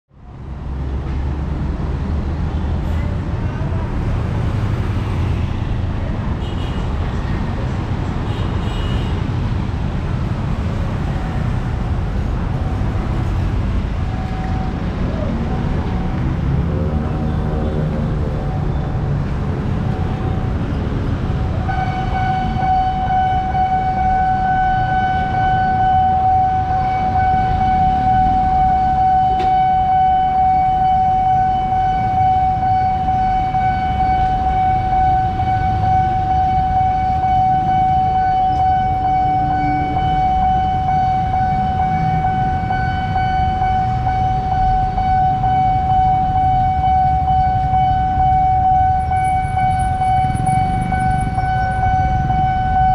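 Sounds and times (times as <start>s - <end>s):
road traffic rumble: 0.1s - 52.9s
level-crossing warning siren: 11.0s - 52.9s.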